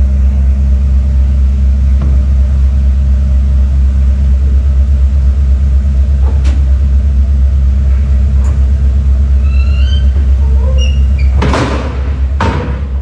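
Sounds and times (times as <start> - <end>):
machinery deep steady hum: 0.0 - 13.0
short high squeaks: 9.3 - 11.4.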